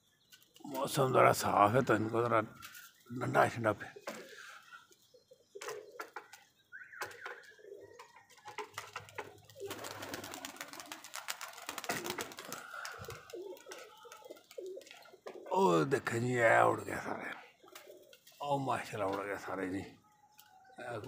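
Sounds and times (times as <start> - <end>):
pigeons cooing: 0.4 - 18.4
wings clapping: 7.0 - 15.4, 19.0 - 19.6.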